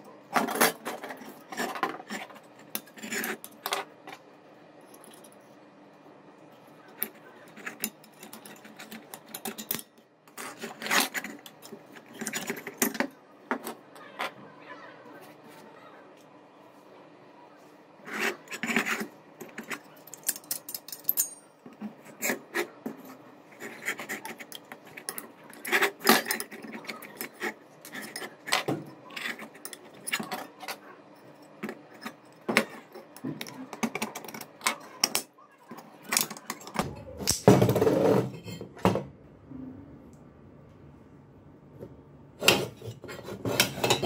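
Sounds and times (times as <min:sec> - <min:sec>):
metal parts clicking and tapping: 0:07.0 - 0:14.1, 0:18.6 - 0:21.9, 0:23.7 - 0:37.5.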